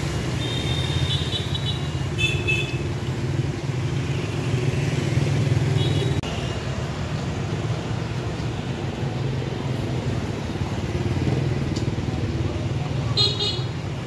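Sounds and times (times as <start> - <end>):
motorbike engines passing: 0.0 - 14.0.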